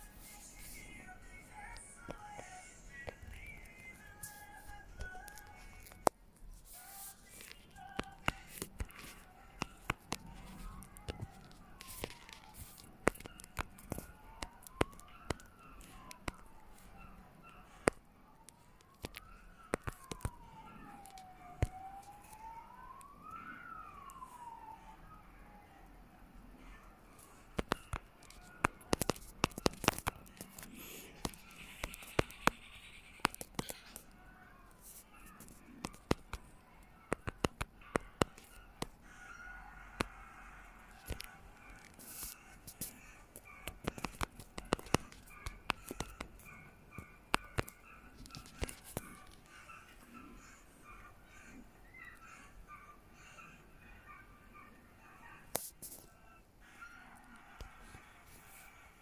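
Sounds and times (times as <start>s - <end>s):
faint siren wailing: 0.0s - 59.0s
phone keyboard clicks: 18.8s - 20.4s, 27.5s - 34.0s, 37.1s - 38.9s, 40.9s - 49.4s.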